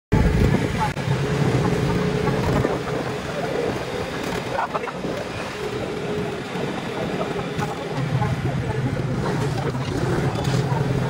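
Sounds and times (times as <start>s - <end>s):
road noise: 0.1s - 11.0s
three-wheeler engine drone: 0.1s - 11.0s.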